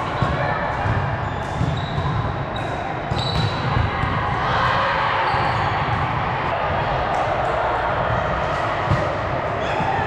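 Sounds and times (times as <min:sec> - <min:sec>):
balls bouncing on gym floor: 0:00.0 - 0:04.5.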